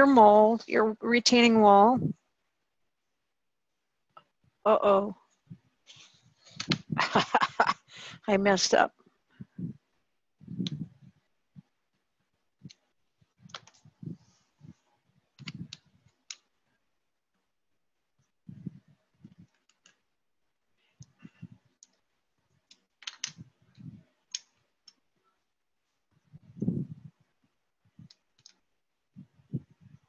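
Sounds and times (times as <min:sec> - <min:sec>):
plastic bricks clicking and knocking: 0:13.4 - 0:13.9, 0:19.4 - 0:20.1, 0:21.8 - 0:25.0, 0:28.0 - 0:28.7.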